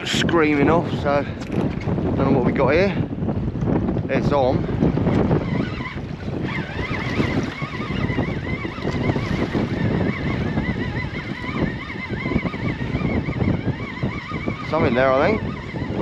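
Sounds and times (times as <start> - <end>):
water lapping against boat hull: 0.0 - 16.0
wind buffeting microphone: 0.0 - 16.0
thin wavering whine: 4.2 - 16.0.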